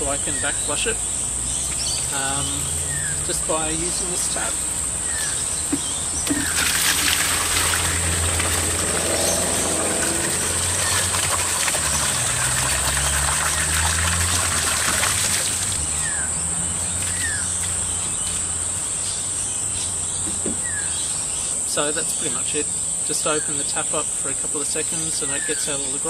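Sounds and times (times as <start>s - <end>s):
water gushing into plastic bucket: 6.2s - 15.8s.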